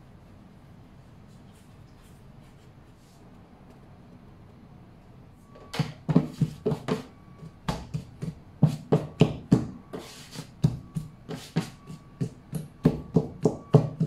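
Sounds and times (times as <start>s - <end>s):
hands slapping dough: 5.8s - 14.0s.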